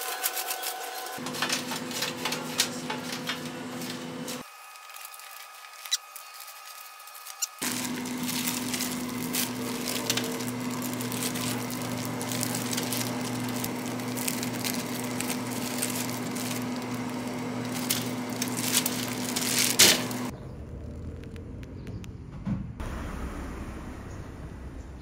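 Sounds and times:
plastic glove crinkling: 0:00.0 - 0:03.2, 0:03.8 - 0:20.3
cakes crumbling: 0:00.0 - 0:20.3
appliance hum: 0:00.0 - 0:25.0
crunch: 0:04.4 - 0:22.1.

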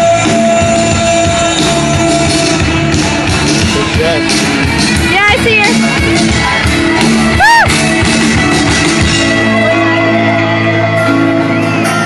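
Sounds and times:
person singing: 0:00.0 - 0:03.1
live rock band playing: 0:00.0 - 0:12.0.

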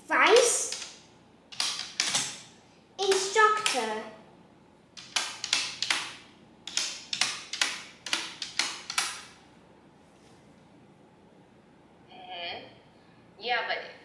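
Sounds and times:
keyboard key clicks: 0:06.7 - 0:09.2.

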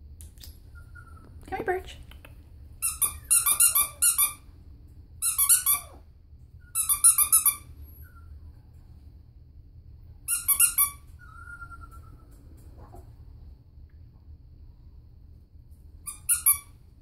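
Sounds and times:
squeaky plush toy squeaking: 0:02.8 - 0:04.4, 0:05.2 - 0:06.0, 0:06.6 - 0:08.2, 0:10.3 - 0:12.1, 0:16.0 - 0:16.8.

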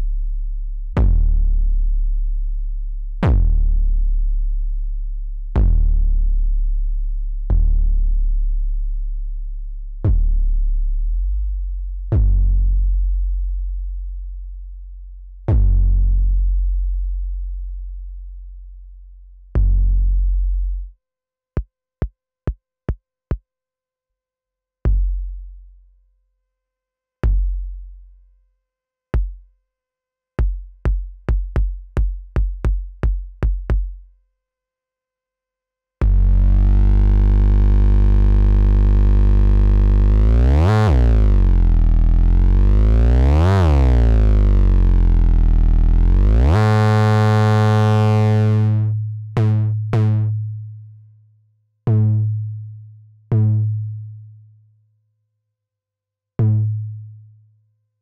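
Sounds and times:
sustained sweeping bass tone: 0:00.0 - 0:13.7, 0:36.0 - 0:50.7
deep synthesizer kick hits: 0:03.2 - 0:03.8.

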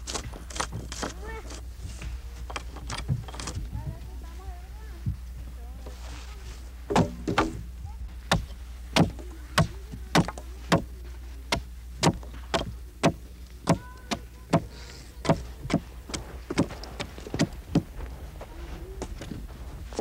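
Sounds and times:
sharp knocks: 0:06.9 - 0:07.7, 0:11.5 - 0:15.8.

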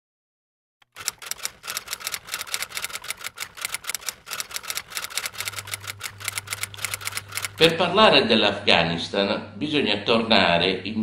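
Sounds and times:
typewriter keys clacking: 0:00.8 - 0:07.8.

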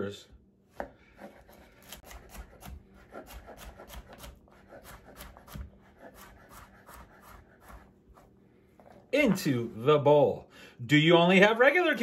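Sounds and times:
knife chopping on cutting board: 0:00.7 - 0:07.9.

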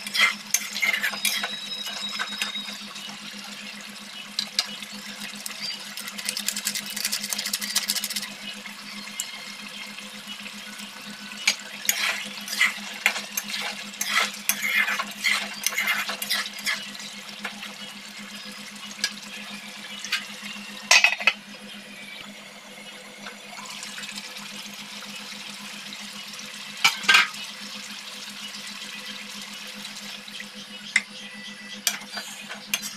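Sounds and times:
metal spatula scraping a pan: 0:00.0 - 0:02.6, 0:11.8 - 0:16.9, 0:31.9 - 0:32.9
sauce sizzling: 0:10.5 - 0:17.0.

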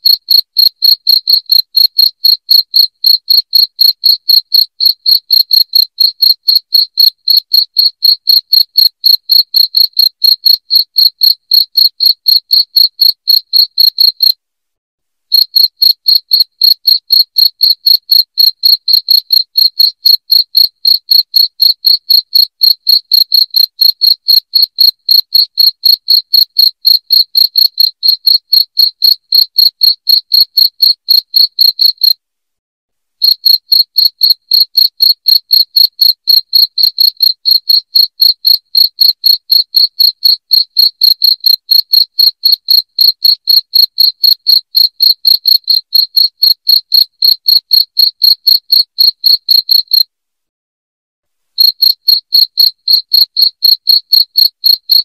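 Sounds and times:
cricket chirping: 0:00.0 - 0:14.4, 0:15.3 - 0:32.2, 0:33.2 - 0:50.0, 0:51.6 - 0:55.0.

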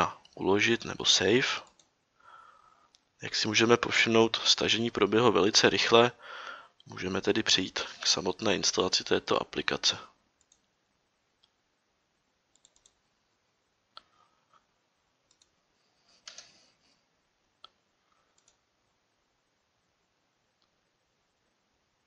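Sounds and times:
computer mouse clicks: 0:10.4 - 0:10.7, 0:12.5 - 0:13.0, 0:15.3 - 0:15.6, 0:16.2 - 0:16.7, 0:17.6 - 0:18.6.

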